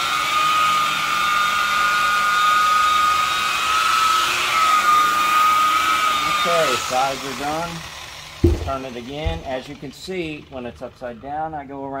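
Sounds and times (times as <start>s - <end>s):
rotary buffer whining: 8.4s - 9.7s.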